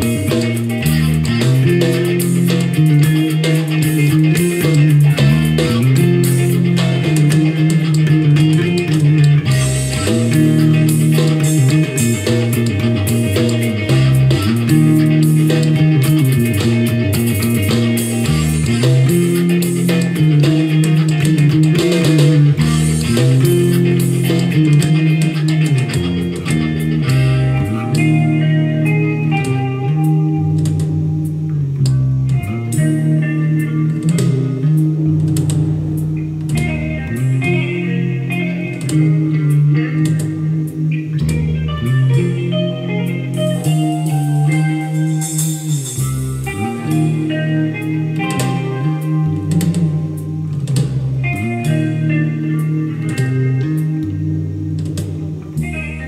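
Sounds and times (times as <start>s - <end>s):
electric bass line: 0.0s - 56.0s
rock band with guitars and drums: 0.0s - 56.0s.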